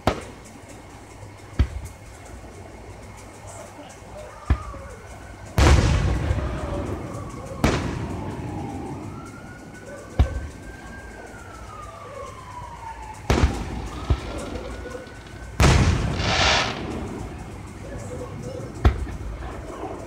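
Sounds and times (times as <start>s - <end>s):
firework shells bursting: 13.3s - 17.8s.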